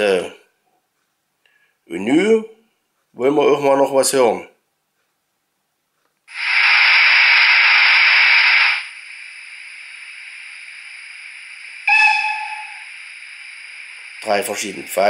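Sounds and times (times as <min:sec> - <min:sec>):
steam hiss: 0:06.3 - 0:15.0
steam whistle blast: 0:11.8 - 0:12.9.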